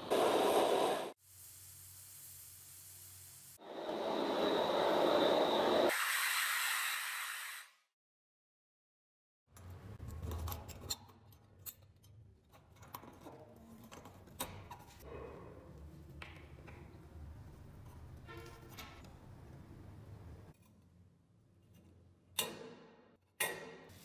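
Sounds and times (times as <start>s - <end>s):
gas torch flame hissing: 0.0s - 7.7s.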